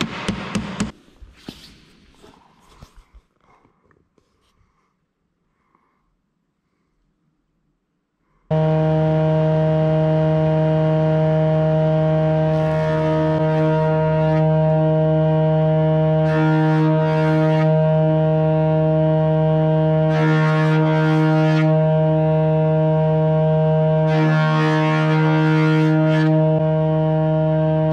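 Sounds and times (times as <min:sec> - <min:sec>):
jointer whining: 0:08.5 - 0:27.9.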